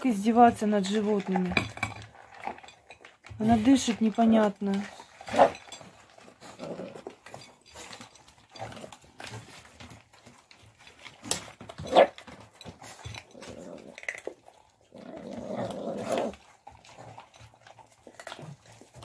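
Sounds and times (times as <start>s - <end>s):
dog snorting and snuffling: 4.8s - 19.0s.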